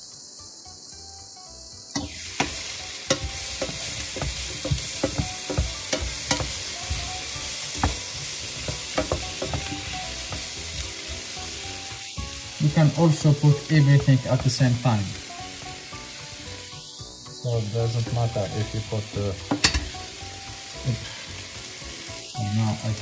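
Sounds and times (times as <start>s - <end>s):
vegetables sizzling in a frying pan: 0.0s - 23.0s
wooden spatula scraping a pan: 3.1s - 11.6s.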